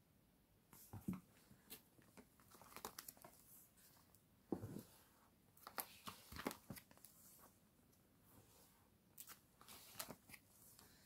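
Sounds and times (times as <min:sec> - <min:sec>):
plastic pages rustling: 0:01.7 - 0:04.1, 0:05.6 - 0:07.2, 0:09.2 - 0:10.8.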